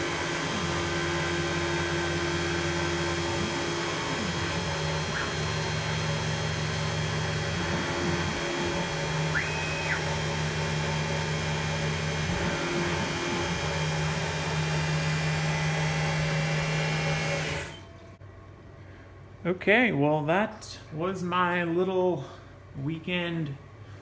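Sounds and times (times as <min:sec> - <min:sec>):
milling machine cutting metal: 0:00.0 - 0:17.9
steady hum: 0:00.0 - 0:24.0.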